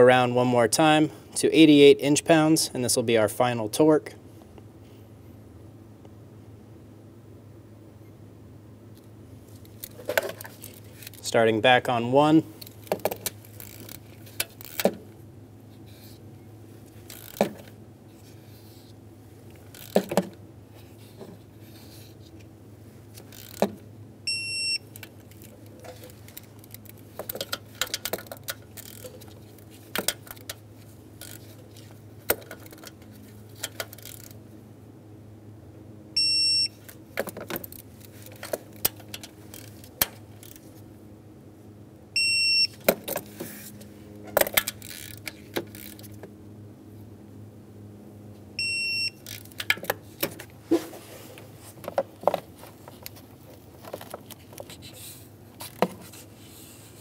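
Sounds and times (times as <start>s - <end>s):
ratchet clicks and clinks: 13.5s - 14.9s, 17.1s - 17.5s, 23.3s - 23.6s, 25.3s - 29.2s, 44.5s - 46.1s, 49.2s - 49.8s
torque wrench beeping: 24.3s - 24.8s, 36.2s - 36.7s, 42.2s - 42.8s, 48.6s - 49.4s.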